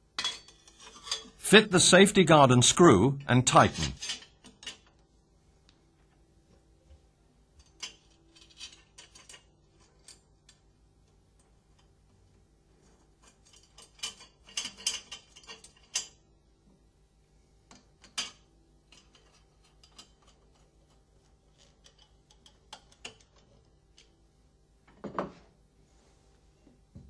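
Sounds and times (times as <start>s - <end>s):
metal clicks and rattling: 13.2s - 16.2s, 17.7s - 24.2s.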